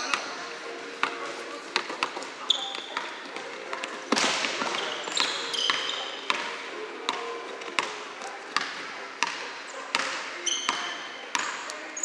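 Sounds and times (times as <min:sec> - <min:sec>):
sneakers squeaking: 0:00.0 - 0:12.0.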